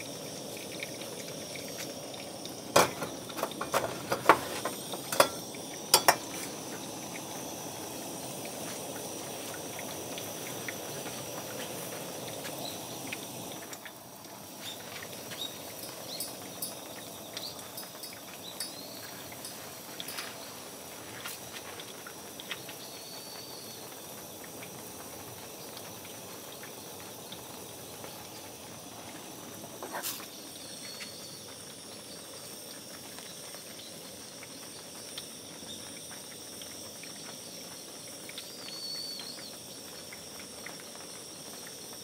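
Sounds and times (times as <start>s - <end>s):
water dripping through coffee filter: 0.0s - 42.0s
sharp metallic clinks: 15.8s - 17.0s, 17.6s - 20.5s.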